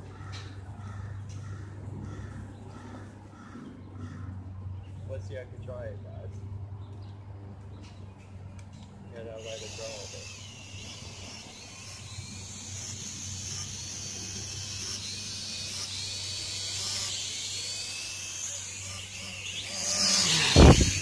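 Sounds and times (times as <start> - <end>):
toy drone propellers whining: 9.1 - 21.0.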